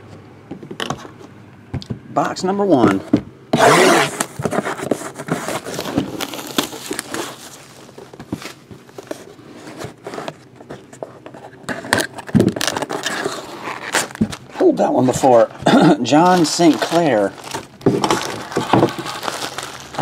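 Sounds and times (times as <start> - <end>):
cardboard scraping: 2.8 - 20.0
shrink wrap crinkling and tearing: 5.4 - 8.6, 11.8 - 20.0.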